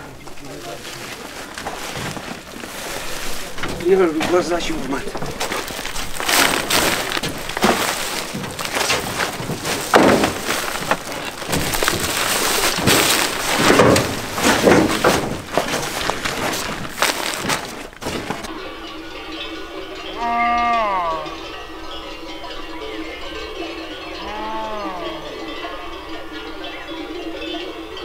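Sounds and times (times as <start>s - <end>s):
sacks rustling: 0.0s - 18.6s
thuds and knocks: 3.6s - 18.5s.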